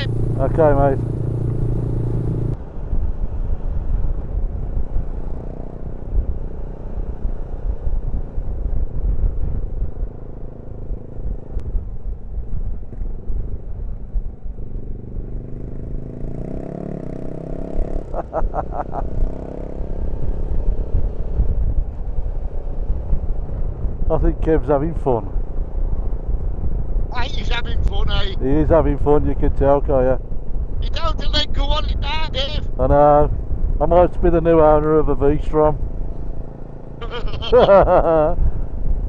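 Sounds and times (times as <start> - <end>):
motorcycle engine: 0.0 - 24.0, 32.6 - 39.0
heavy wind rumble: 0.0 - 39.0.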